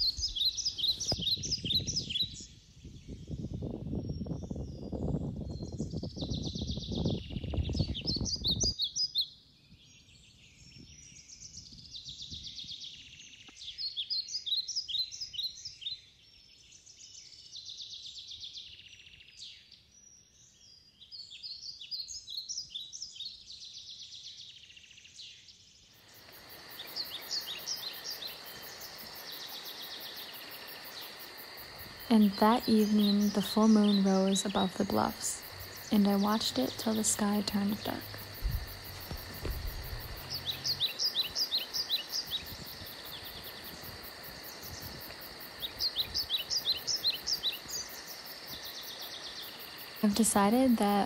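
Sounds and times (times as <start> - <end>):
songbirds singing: 0.0 - 51.0
high-pitched insect trill: 26.0 - 51.0
steady hiss: 26.0 - 51.0
low rumble: 37.6 - 41.2.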